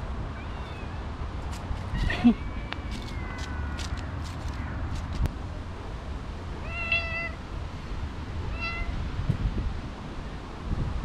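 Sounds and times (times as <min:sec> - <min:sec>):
cat meowing: 0:00.3 - 0:01.0, 0:01.8 - 0:04.8, 0:06.6 - 0:07.4, 0:08.5 - 0:09.0.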